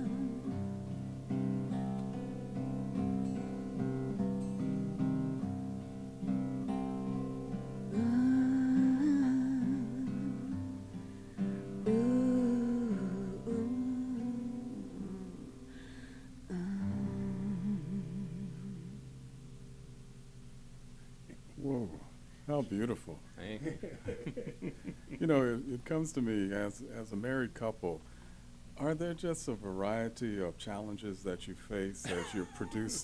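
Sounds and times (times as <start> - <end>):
person humming: 0.0 - 0.6, 7.9 - 10.6, 11.8 - 15.8, 16.5 - 19.0, 32.1 - 33.0
acoustic guitars playing folk: 0.0 - 21.5.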